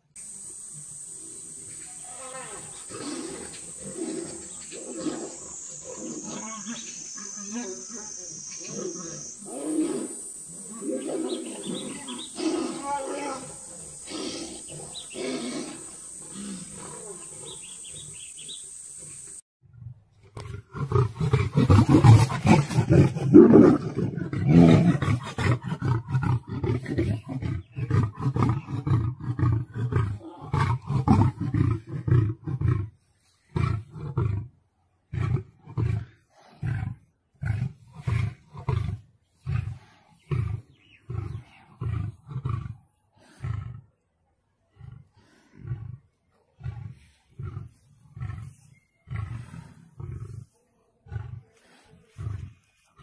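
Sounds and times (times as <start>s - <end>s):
lion roaring: 2.1s - 6.7s, 8.7s - 18.6s, 20.4s - 34.5s, 35.1s - 44.0s, 44.7s - 52.7s
lion grunting: 8.7s - 18.6s, 20.4s - 34.5s, 35.1s - 44.0s, 44.7s - 53.0s.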